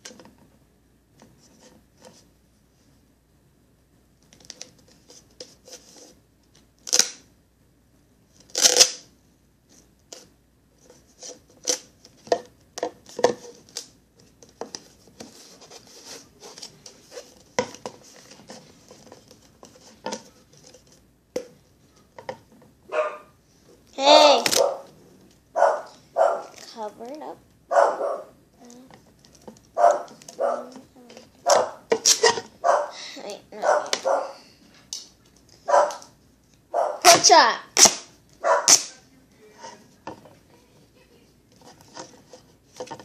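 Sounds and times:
duct tape ripping: 0:06.8 - 0:07.2, 0:08.4 - 0:09.1, 0:11.6 - 0:11.9, 0:24.2 - 0:24.7, 0:31.5 - 0:32.5, 0:37.1 - 0:39.0.

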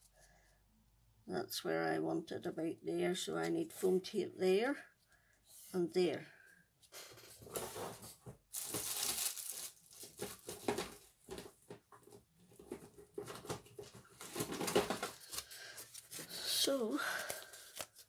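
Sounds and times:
paper and tape rustling: 0:07.2 - 0:18.0.

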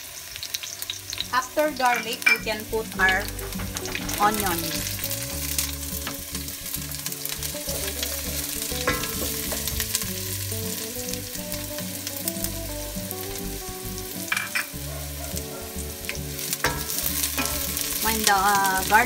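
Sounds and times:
garlic sizzling in hot oil: 0:00.0 - 0:19.0
spatula scraping metal pot: 0:16.5 - 0:19.0.

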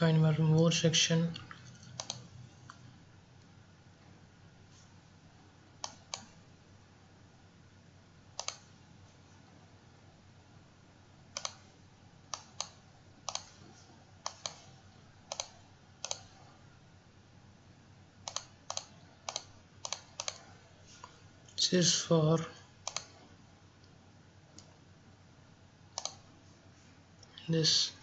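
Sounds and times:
faint low hum: 0:00.0 - 0:28.0
computer mouse clicking: 0:01.6 - 0:02.8, 0:05.8 - 0:06.4, 0:08.4 - 0:08.7, 0:11.3 - 0:11.7, 0:12.3 - 0:13.6, 0:14.2 - 0:16.4, 0:18.2 - 0:21.2, 0:22.8 - 0:23.2, 0:25.9 - 0:26.2.

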